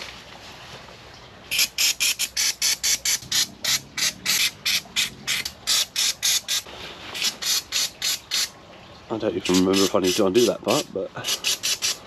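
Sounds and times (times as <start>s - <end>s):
spray can hissing squirts: 7.2s - 8.5s, 11.3s - 12.0s.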